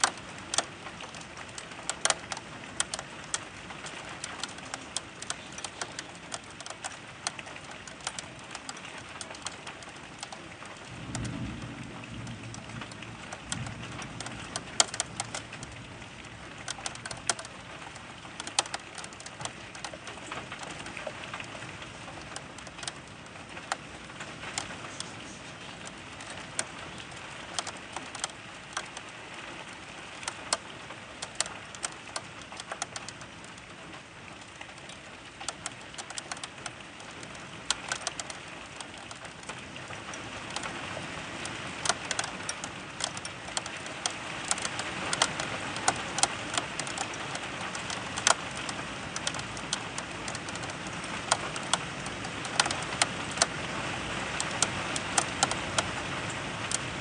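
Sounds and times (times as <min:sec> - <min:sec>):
rain falling: 0:00.0 - 0:57.0
raindrops ticking on window: 0:00.0 - 0:57.0
low rumble of thunder: 0:10.8 - 0:16.6.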